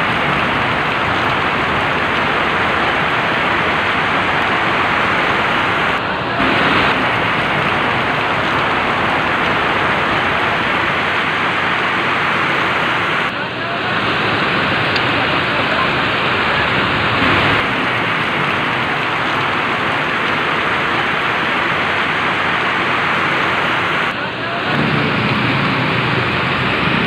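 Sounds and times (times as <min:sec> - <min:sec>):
floodwater rushing: 0:00.0 - 0:27.0
heavy rain: 0:00.0 - 0:27.0.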